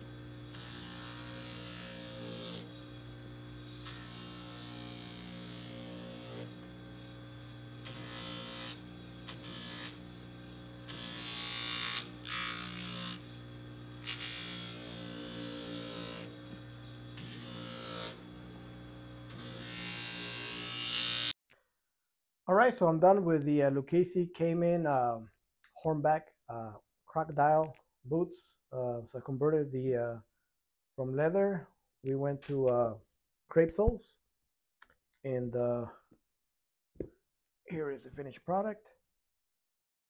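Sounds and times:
trimmer motor humming: 0.0 - 21.4.

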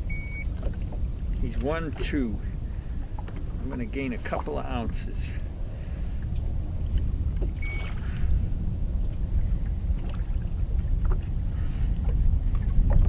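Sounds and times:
wind buffeting microphone: 0.0 - 13.0
short electronic beep: 0.1 - 0.5, 7.6 - 8.0.

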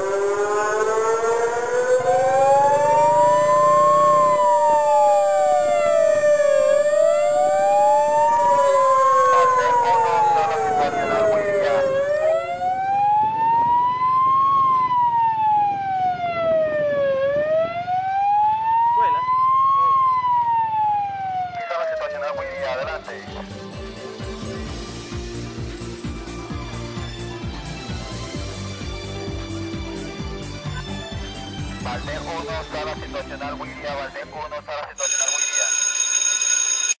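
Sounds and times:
siren holding steady tone: 0.0 - 23.0
sirens wailing: 0.0 - 35.3.

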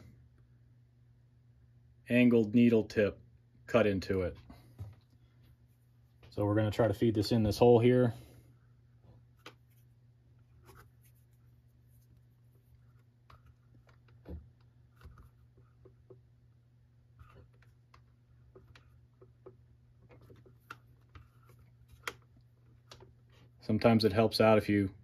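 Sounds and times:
low steady hum: 0.0 - 25.0
plastic handling clicks and rubbing: 9.1 - 16.3, 17.1 - 23.6.

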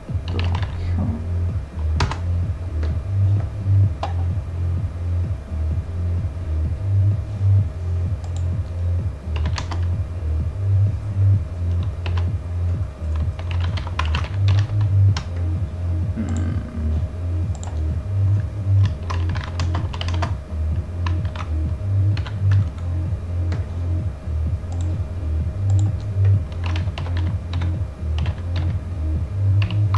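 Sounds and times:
electronic music with pulsing bass: 0.0 - 29.9
keyboard typing clicks: 1.9 - 2.2, 4.0 - 4.3, 8.2 - 8.6, 9.4 - 9.9, 11.7 - 12.3, 13.0 - 15.4, 17.5 - 17.9, 18.8 - 20.4, 21.0 - 21.5, 24.7 - 25.0, 25.7 - 28.7.

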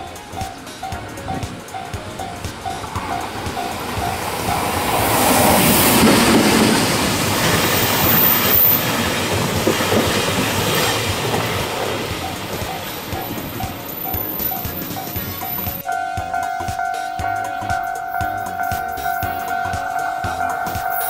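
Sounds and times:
freight train rumbling past: 0.0 - 21.0
wagon wheels clattering on rails: 0.0 - 21.0
level crossing bell ringing: 12.1 - 21.0.

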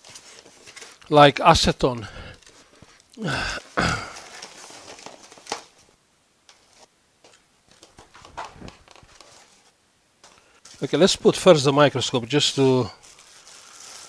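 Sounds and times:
plastic packaging rustling: 0.0 - 1.1, 2.3 - 11.4, 12.5 - 14.0
breathy noises: 1.9 - 4.5.

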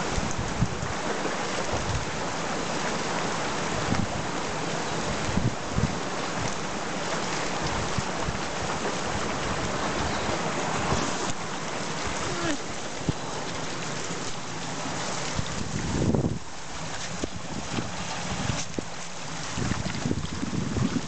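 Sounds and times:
river babbling over stones: 0.0 - 21.0.

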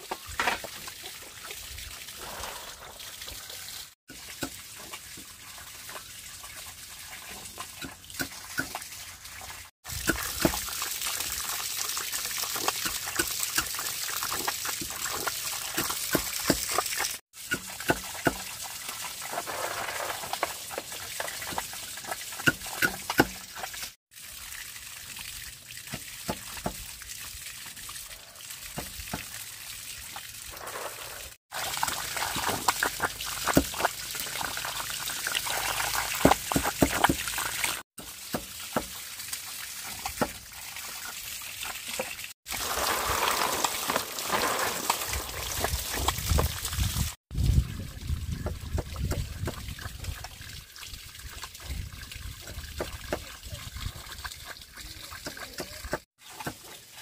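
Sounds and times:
water trickling and sloshing: 0.0 - 57.0.

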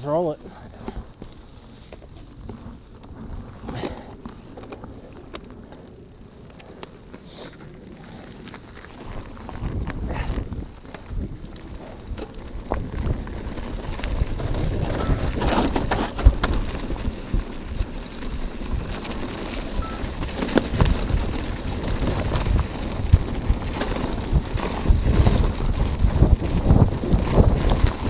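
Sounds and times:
bike knocks and rattles: 0.0 - 28.0
bike rolling over dry leaves: 0.0 - 28.0
wind buffeting microphone: 7.8 - 28.0.

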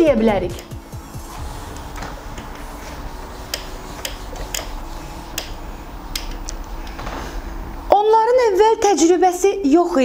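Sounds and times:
low steady hum: 0.0 - 10.0
marker clicking on whiteboard: 1.9 - 6.9.

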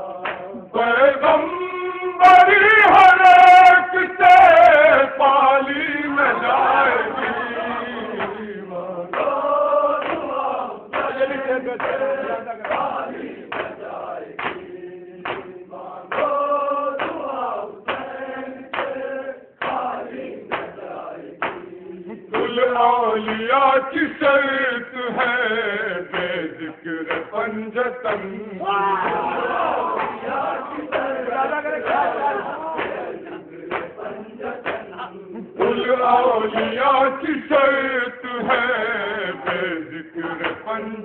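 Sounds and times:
men chanting a lament: 0.0 - 41.0.

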